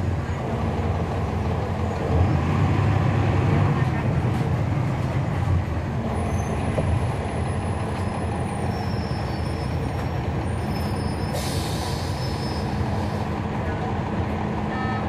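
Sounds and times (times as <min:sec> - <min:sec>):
bus diesel engine running: 0:00.0 - 0:15.0
air brake hiss: 0:11.1 - 0:13.2.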